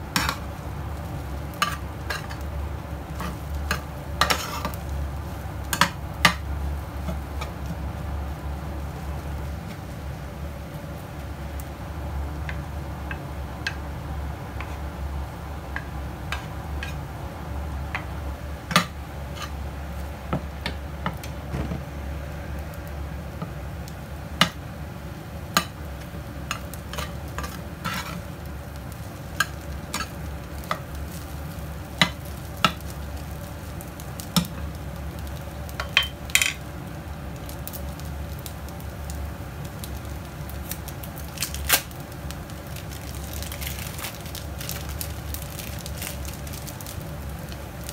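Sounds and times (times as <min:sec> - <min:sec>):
food sizzling: 0:00.0 - 0:47.9
metal spatula scraping frying pan: 0:03.2 - 0:04.8, 0:26.5 - 0:28.3.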